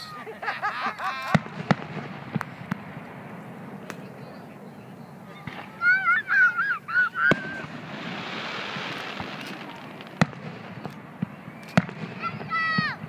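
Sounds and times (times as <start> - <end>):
small firework pops: 1.0 - 3.2, 3.8 - 4.4, 5.4 - 6.0, 7.2 - 13.0
firework bangs: 1.2 - 13.0
steady hiss: 1.4 - 12.6.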